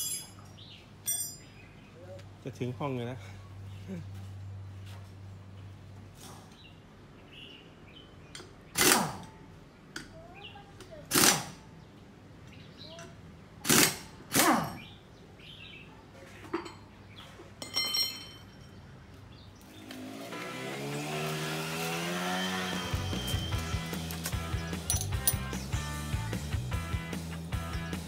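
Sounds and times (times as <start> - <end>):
pneumatic impact wrench bursts: 8.7 - 9.3, 11.1 - 11.6, 13.6 - 14.5, 20.9 - 24.4.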